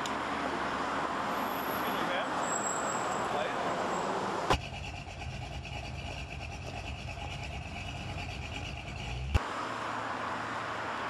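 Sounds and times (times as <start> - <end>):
passing road traffic hiss: 0.0 - 4.6, 9.3 - 11.0.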